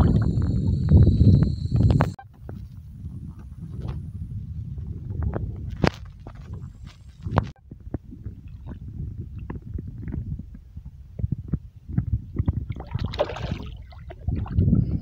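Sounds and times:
wind buffeting microphone: 0.0 - 15.0
water splashes: 12.7 - 14.6.

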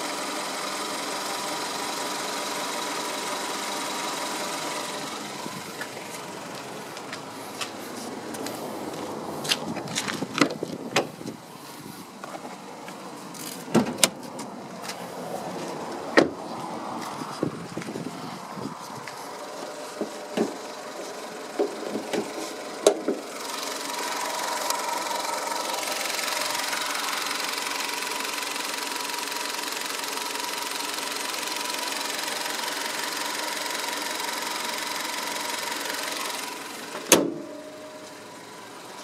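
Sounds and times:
car engine idling with whine: 0.0 - 39.0
car door and bonnet clicks: 13.4 - 15.0, 37.0 - 38.2.

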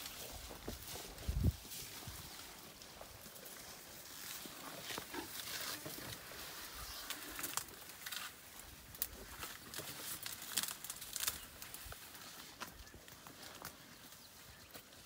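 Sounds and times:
leaves rustling: 0.0 - 15.0
twigs crackling and snapping: 6.9 - 15.0.

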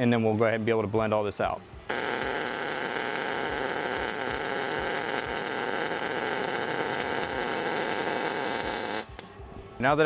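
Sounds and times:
mig welding arc: 1.9 - 9.2.

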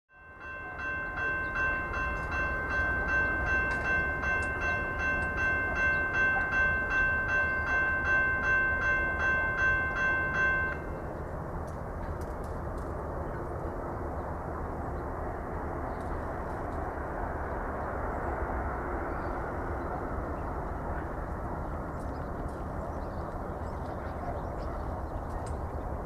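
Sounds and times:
railroad crossing bell ringing: 0.1 - 11.4.

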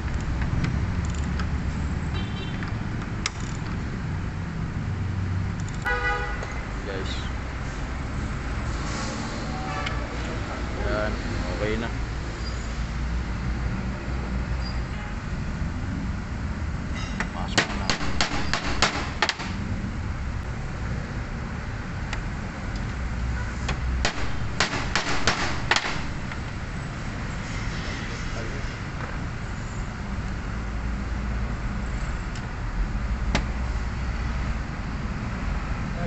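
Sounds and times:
tools clicking and knocking: 0.0 - 1.6, 2.5 - 3.8.

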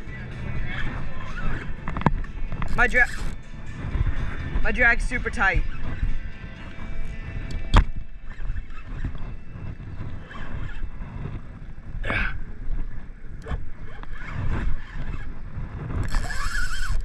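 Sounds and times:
low rumbling wind: 0.0 - 17.0
water noise around boat: 0.0 - 17.0
bright wavering noise: 2.6 - 4.4.

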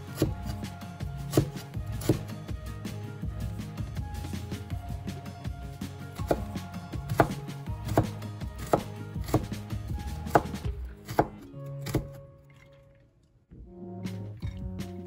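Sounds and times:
knife chopping on wooden board: 0.0 - 0.7, 1.3 - 2.4, 6.2 - 12.2
soft background music: 0.0 - 15.0.

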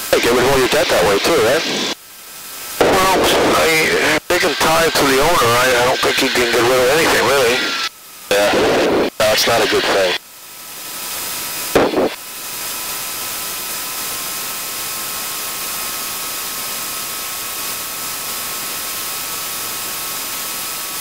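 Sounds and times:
turbine engine whine: 0.0 - 2.0, 2.8 - 12.3
loud burst: 11.7 - 12.2.

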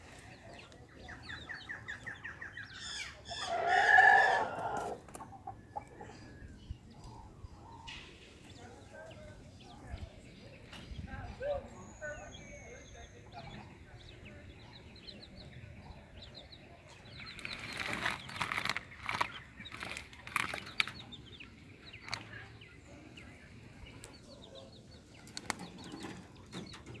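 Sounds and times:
quail flapping and scuffling: 17.2 - 21.2, 25.1 - 27.0.

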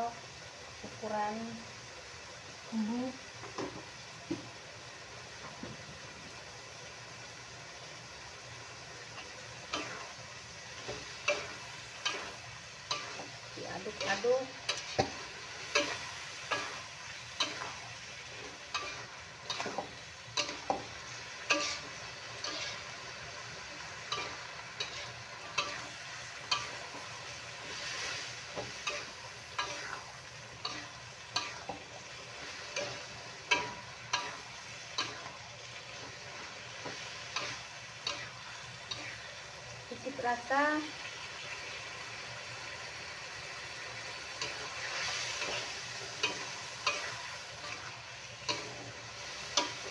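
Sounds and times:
food sizzling: 0.0 - 49.9
metal spatula scraping wok: 9.2 - 39.4, 44.2 - 49.9.

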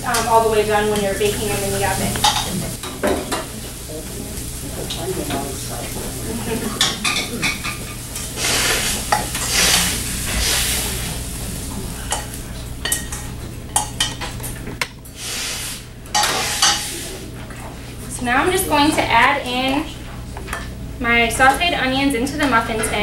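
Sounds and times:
onions sizzling in a frying pan: 0.0 - 14.1, 15.1 - 17.2
utensil scraping and clinking on pan: 16.1 - 17.0.

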